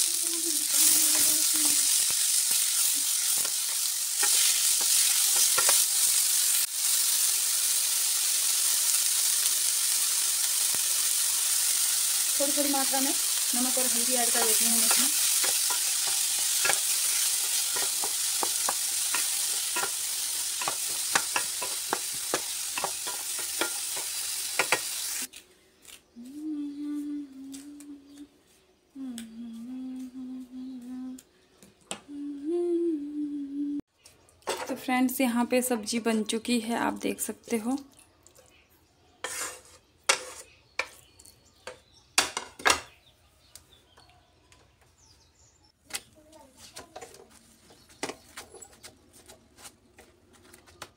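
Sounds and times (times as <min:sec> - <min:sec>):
vegetables sizzling in a pan: 0:00.0 - 0:25.3
spatula clicking and scraping pan: 0:02.5 - 0:06.2, 0:14.2 - 0:25.0, 0:39.2 - 0:41.1.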